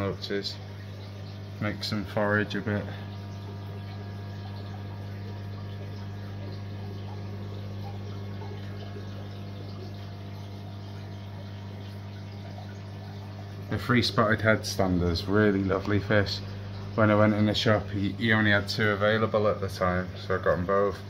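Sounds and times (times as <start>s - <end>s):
water circulating: 0.0s - 21.0s
water pump humming: 0.0s - 21.0s.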